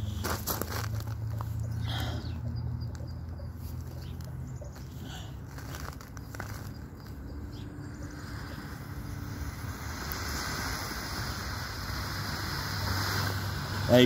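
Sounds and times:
smoke grenade hissing: 0:08.1 - 0:14.0.

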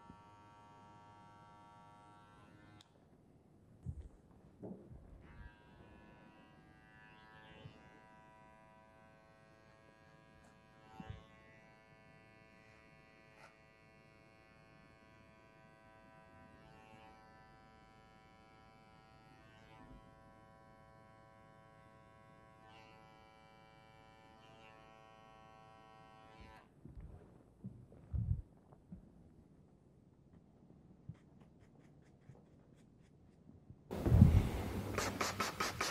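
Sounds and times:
electric hair trimmer humming: 0:00.0 - 0:02.8, 0:05.3 - 0:26.7.

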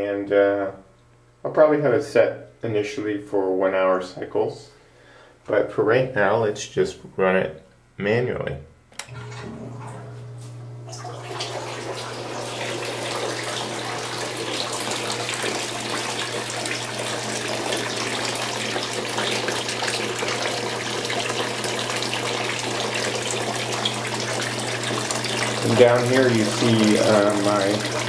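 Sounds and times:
water pump humming: 0:08.9 - 0:28.0
water pouring and splashing: 0:09.2 - 0:28.0.

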